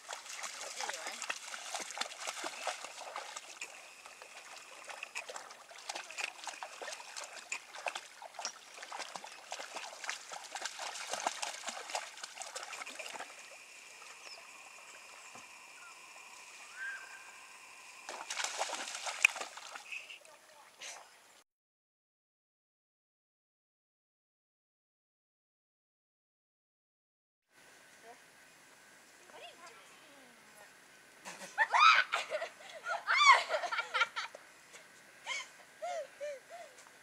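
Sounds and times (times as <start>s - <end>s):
dog wading in water: 0.0s - 21.2s
kayak paddle splashing: 0.0s - 21.2s.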